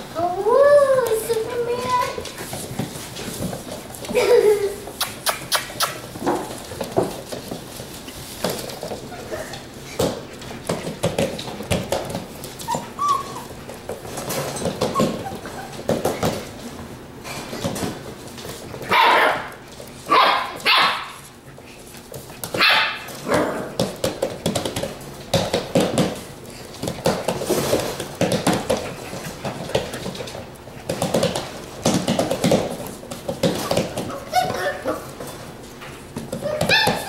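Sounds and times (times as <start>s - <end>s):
puppies barking: 12.6s - 13.6s, 18.9s - 21.3s, 22.5s - 23.8s, 33.7s - 35.2s, 36.4s - 37.0s
puppies yipping: 12.6s - 13.7s, 14.3s - 16.4s, 33.6s - 35.2s, 36.3s - 37.0s.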